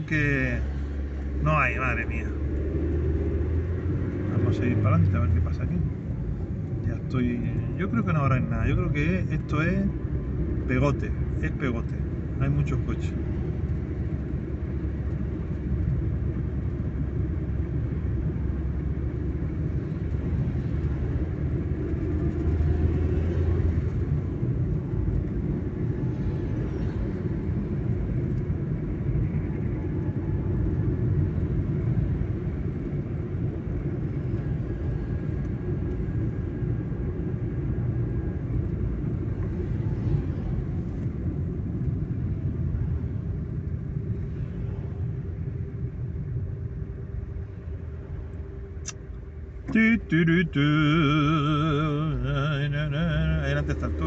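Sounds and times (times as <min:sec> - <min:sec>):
car engine and tyres rumble: 0:00.0 - 0:54.0.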